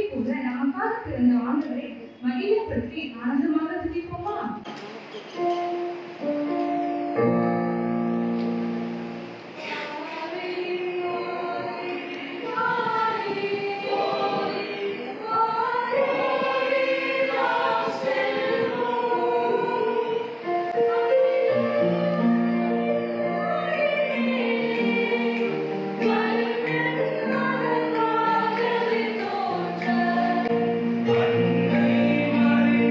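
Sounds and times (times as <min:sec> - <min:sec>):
mixed choir singing a carol: 0:09.5 - 0:32.9.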